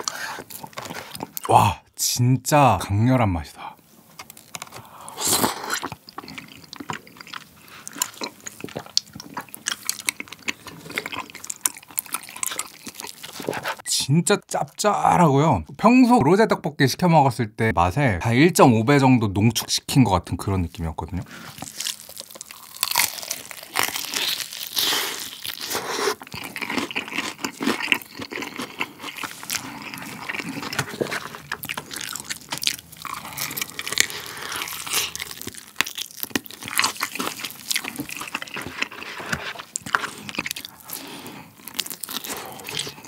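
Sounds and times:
crunching and chewing fried chicken: 0.0s - 1.5s, 4.1s - 13.9s, 21.3s - 43.0s.

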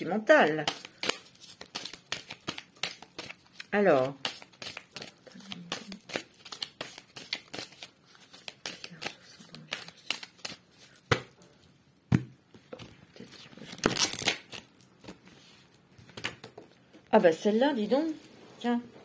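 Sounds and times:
cards shuffling: 0.5s - 11.4s, 12.1s - 16.8s
cards snapping and clicking: 0.6s - 5.1s, 13.7s - 15.2s.

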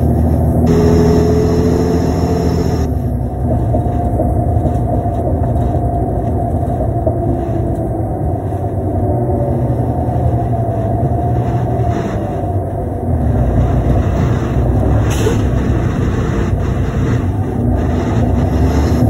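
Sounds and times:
bus engine rumble: 0.0s - 19.0s
thin steady whine: 0.7s - 2.9s.

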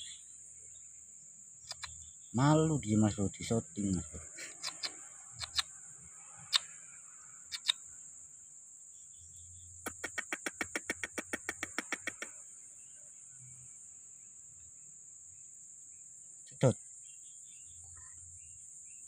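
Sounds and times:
crickets trilling: 0.0s - 19.0s
quick run of clicks: 1.7s - 1.9s, 4.5s - 5.7s, 7.5s - 7.8s, 9.9s - 12.4s
sharp clicks: 1.7s - 1.9s, 4.5s - 5.7s, 7.5s - 7.8s, 9.9s - 12.3s.

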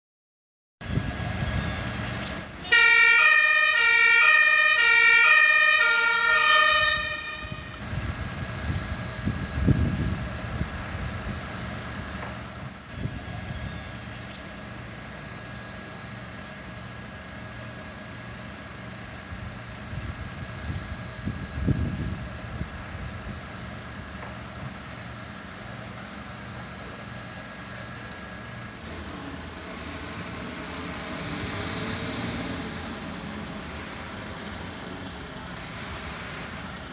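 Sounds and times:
heavy vehicle engine running: 0.8s - 36.9s
fire engine two-tone siren: 2.6s - 7.9s.

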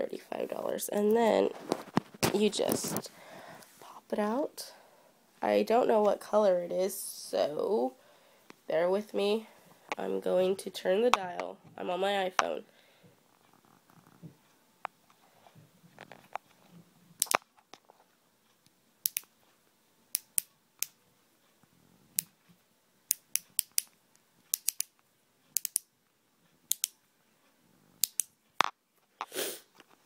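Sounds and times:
lip gloss dial clicking: 24.5s - 24.9s, 25.6s - 25.9s, 26.7s - 27.0s.

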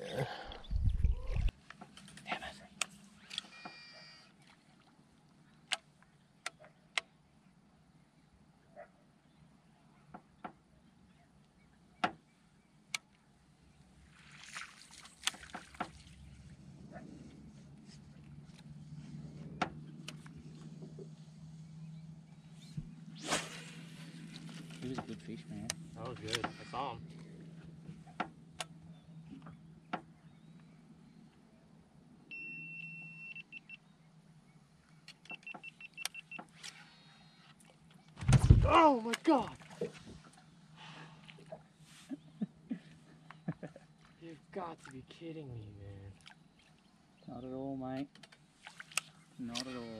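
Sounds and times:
water sloshing: 14.0s - 16.6s, 37.6s - 40.6s, 46.1s - 47.1s, 48.4s - 49.9s.

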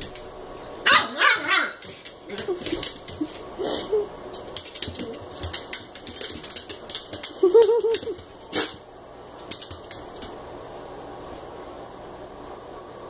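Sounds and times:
dog yipping: 0.9s - 1.8s
dog claws clicking on tile: 1.8s - 3.5s, 4.3s - 10.4s.

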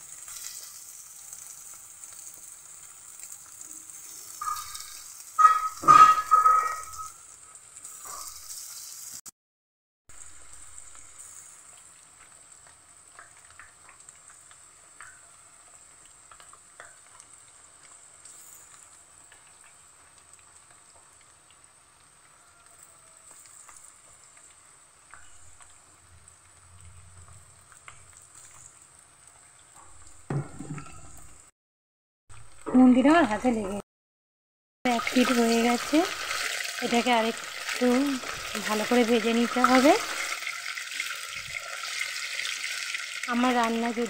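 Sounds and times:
chicken frying in hot oil: 0.0s - 9.3s, 10.1s - 31.5s, 32.3s - 33.8s, 34.9s - 44.0s
oil pops and crackles: 12.2s - 15.3s, 16.0s - 18.0s.

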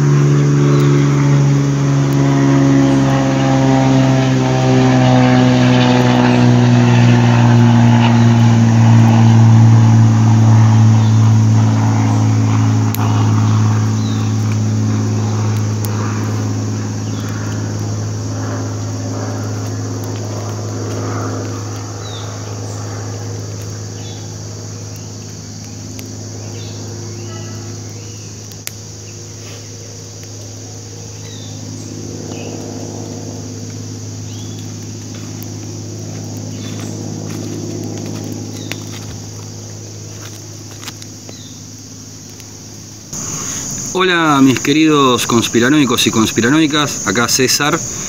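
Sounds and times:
high insect hiss: 0.0s - 48.0s
low engine drone: 0.0s - 48.0s
bird chirps: 13.0s - 15.6s, 23.6s - 29.8s, 30.9s - 32.7s, 34.2s - 35.4s, 38.5s - 39.2s.

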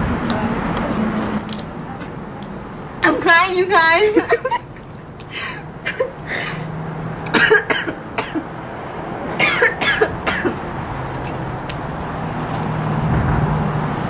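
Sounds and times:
woman coughing and spluttering: 4.1s - 4.7s, 5.5s - 6.6s, 7.3s - 8.4s, 9.4s - 10.6s.

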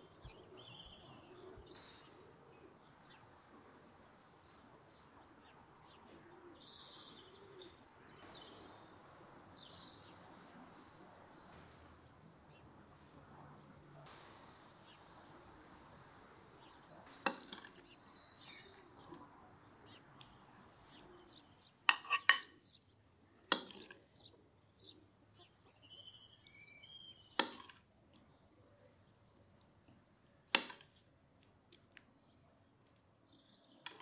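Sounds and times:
faint bird chirps: 0.0s - 30.6s
fork clinking on clay plate: 21.9s - 22.5s.

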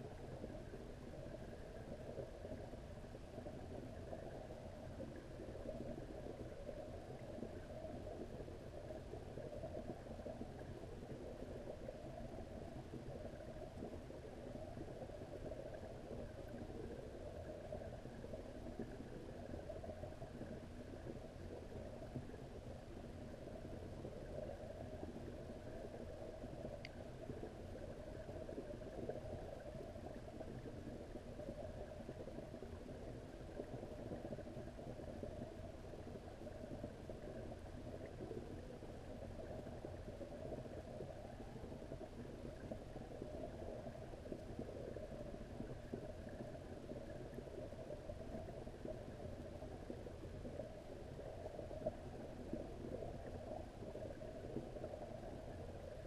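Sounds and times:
faint tick: 0.0s - 56.0s
muffled underwater rumble: 0.0s - 56.0s.

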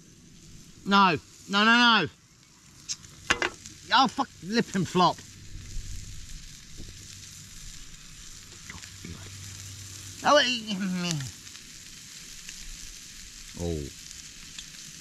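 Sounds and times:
prawns sizzling in a pan: 0.0s - 15.0s.

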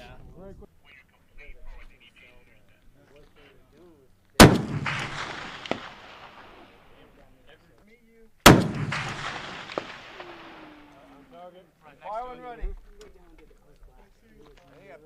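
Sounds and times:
rifle shots with rolling echo: 4.4s - 7.1s, 8.4s - 11.2s.

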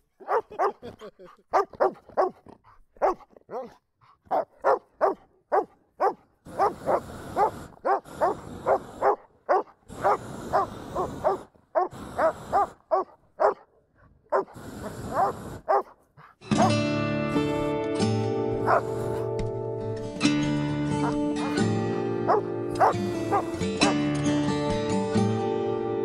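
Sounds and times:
dog barking excitedly: 0.2s - 0.9s, 1.5s - 13.7s, 14.3s - 16.7s, 22.3s - 23.4s.

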